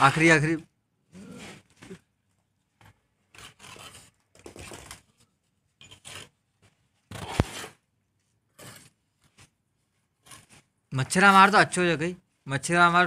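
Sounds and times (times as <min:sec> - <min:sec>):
trowel scraping mortar: 0:03.2 - 0:04.2, 0:05.8 - 0:07.9, 0:08.5 - 0:11.8.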